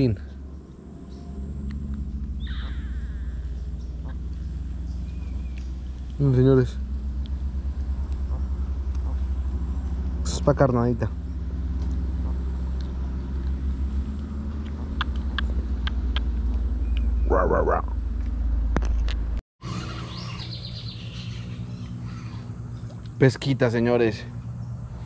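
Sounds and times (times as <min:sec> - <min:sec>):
sharp clicks: 0:12.7 - 0:17.1.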